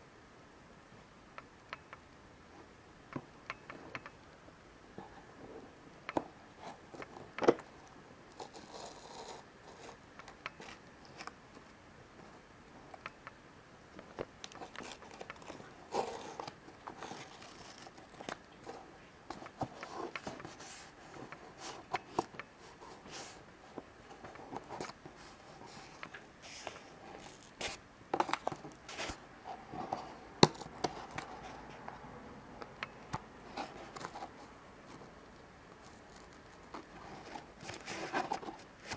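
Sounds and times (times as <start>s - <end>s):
packing tape peeling: 14.5s - 18.5s.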